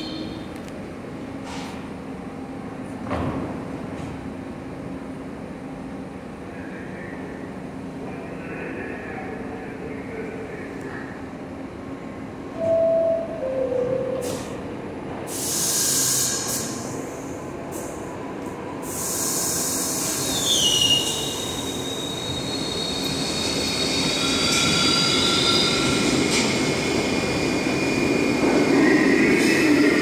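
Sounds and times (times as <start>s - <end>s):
air hissing: 15.3s - 16.9s, 18.8s - 21.3s
train wheels squealing: 18.9s - 30.0s.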